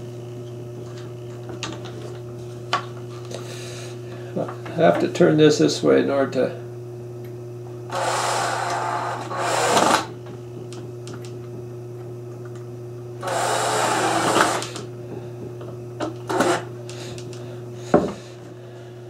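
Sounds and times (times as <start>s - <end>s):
cordless drill driving screws: 7.9s - 10.1s, 13.2s - 14.8s, 16.3s - 16.6s.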